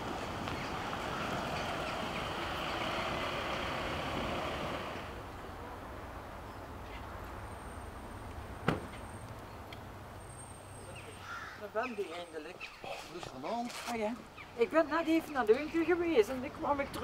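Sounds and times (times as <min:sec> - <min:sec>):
car tyres on wet road: 0:00.0 - 0:05.2
low running hum: 0:00.0 - 0:05.2.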